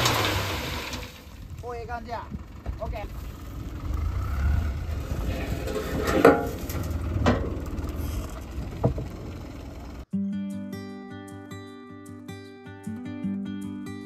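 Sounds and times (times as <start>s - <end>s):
truck engine rumbling: 0.0s - 10.1s
truck knocks: 4.9s - 10.0s
acoustic guitar music: 9.9s - 14.0s.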